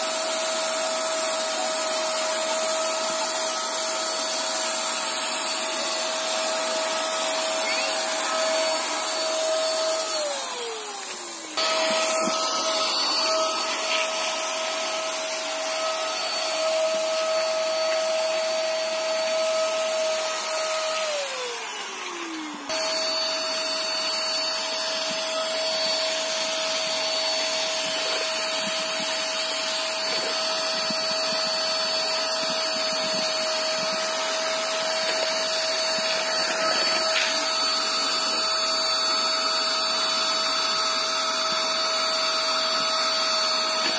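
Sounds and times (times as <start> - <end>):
motor winding down: 0.0 - 43.9
paint sprayer motor whining: 0.0 - 43.9.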